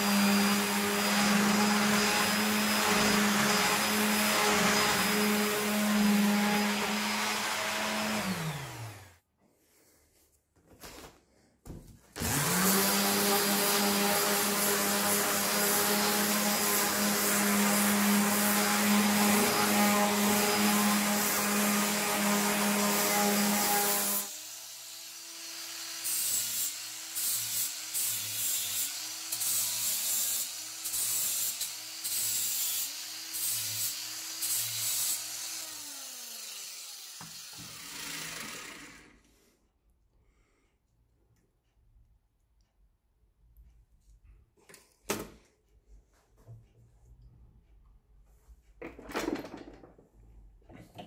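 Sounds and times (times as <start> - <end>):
angle grinder grinding steel: 0.0 - 9.2, 12.2 - 39.2.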